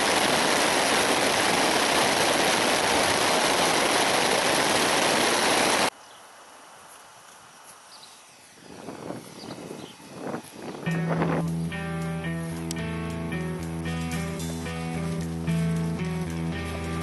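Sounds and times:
heavy rain on a tent: 0:00.0 - 0:06.0, 0:14.6 - 0:17.0.

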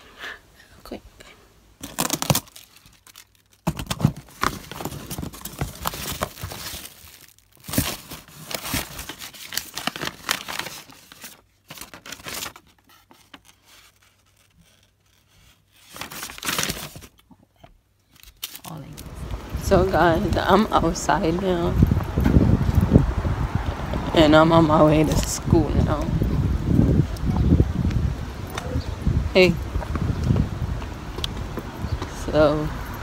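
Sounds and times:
paper rustling and tearing: 0:01.8 - 0:17.2.

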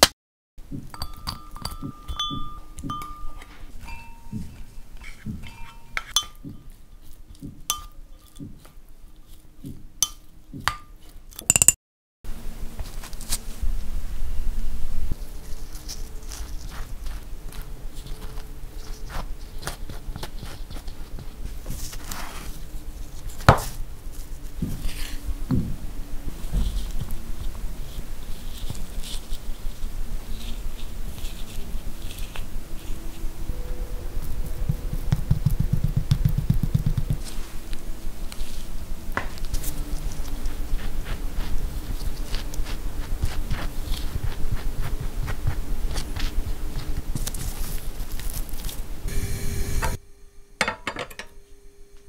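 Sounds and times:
low steady hum: 0:00.6 - 0:52.0
spoon stirring in glass bowl: 0:00.8 - 0:11.8, 0:33.9 - 0:37.5
knife scraping bread: 0:15.5 - 0:22.6, 0:39.6 - 0:48.8.

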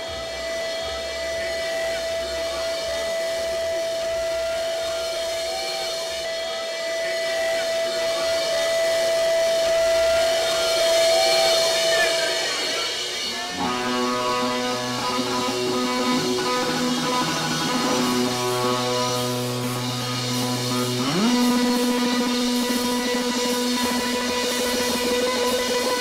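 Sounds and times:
electric guitars playing: 0:00.0 - 0:26.0.

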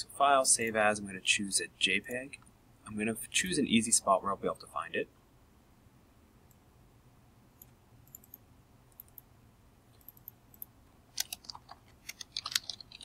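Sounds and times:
mouse and keyboard clicking: 0:10.0 - 0:13.0.

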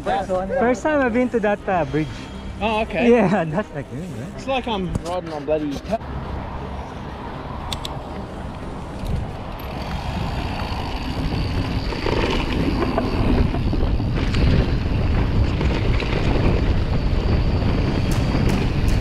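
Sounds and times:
wind rushing over microphone: 0:07.5 - 0:19.0
sharp clicks: 0:07.7 - 0:08.0
bike tyre rumble: 0:08.8 - 0:19.0.

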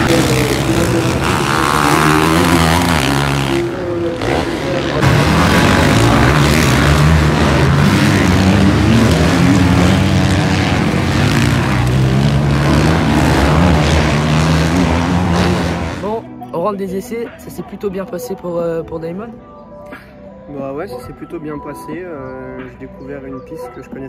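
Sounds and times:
motocross bike engines revving: 0:00.0 - 0:16.2.

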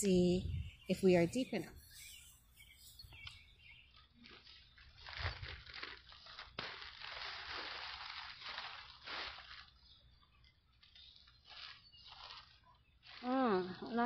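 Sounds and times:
plastic bag crinkling: 0:03.8 - 0:13.6.

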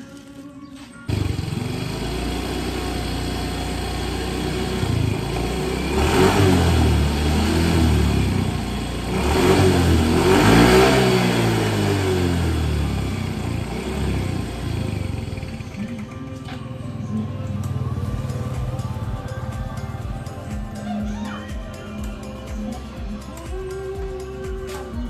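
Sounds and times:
vehicle engine starting and revving: 0:01.1 - 0:20.8.

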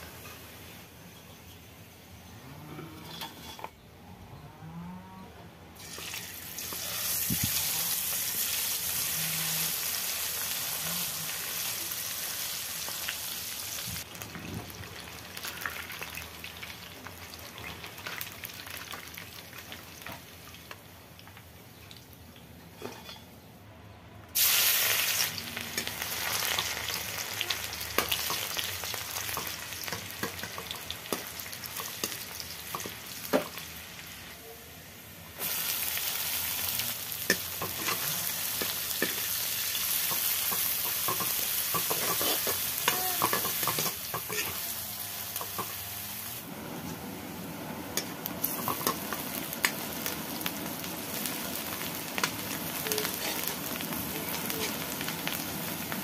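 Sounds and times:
loud sizzle of food hitting oil: 0:05.8 - 0:22.0, 0:24.4 - 0:34.1, 0:35.4 - 0:47.2, 0:47.8 - 0:56.0
hot oil sizzling: 0:05.8 - 0:23.0, 0:24.3 - 0:34.4, 0:35.0 - 0:56.0
metal ladle scraping a pan: 0:41.7 - 0:44.7.

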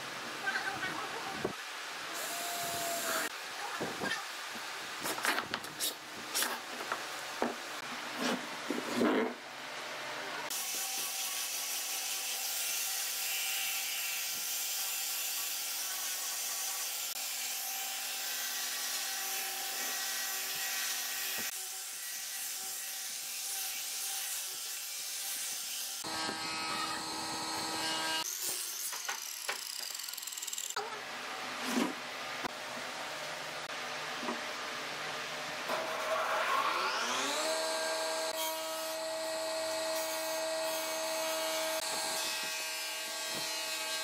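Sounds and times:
angle grinder sanding wood: 0:14.2 - 0:30.8.

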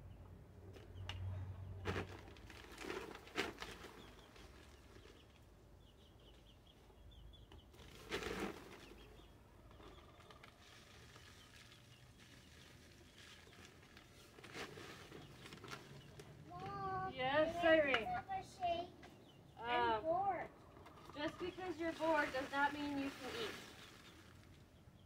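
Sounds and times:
soft clatters and rustles: 0:00.6 - 0:05.5, 0:07.5 - 0:17.0.

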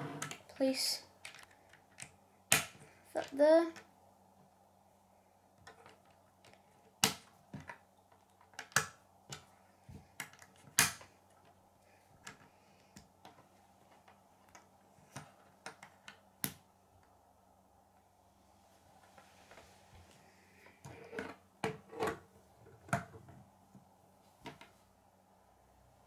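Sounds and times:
plastic construction pieces clicking: 0:05.6 - 0:09.5.

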